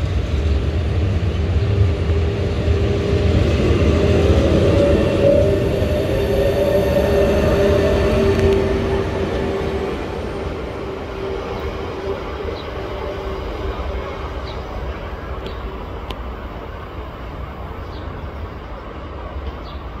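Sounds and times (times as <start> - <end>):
electric train rumbling on track: 0.0 - 20.0.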